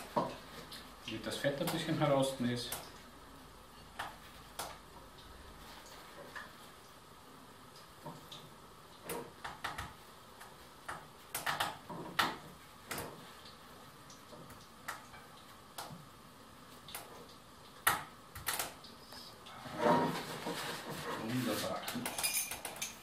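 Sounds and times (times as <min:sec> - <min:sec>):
kitchen paper handled: 0:20.0 - 0:22.0.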